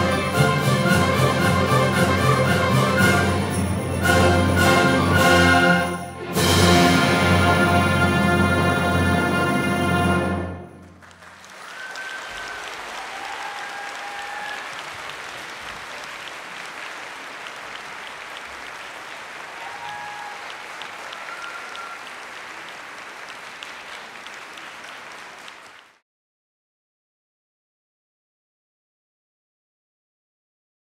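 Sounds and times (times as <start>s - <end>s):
audience applauding: 9.7s - 26.0s.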